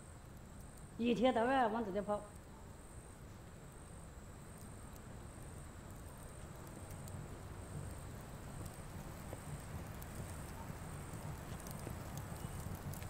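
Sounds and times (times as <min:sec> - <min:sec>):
low background rumble: 0:00.0 - 0:13.0
crickets trilling: 0:02.8 - 0:13.0
faint clicks: 0:05.9 - 0:07.2, 0:07.8 - 0:13.0.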